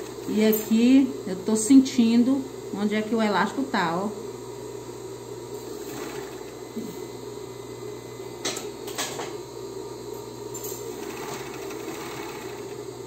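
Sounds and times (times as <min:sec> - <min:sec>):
sewing machine running: 0:05.6 - 0:06.7, 0:10.6 - 0:13.0.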